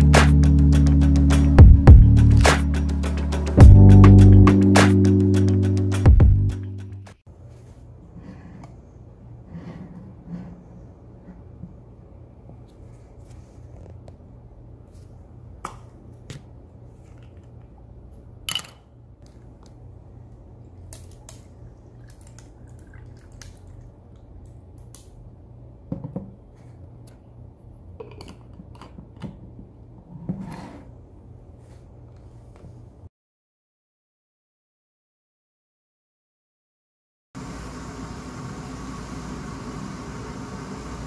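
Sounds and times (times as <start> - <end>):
liquid pouring over ice: 21.9 - 23.8.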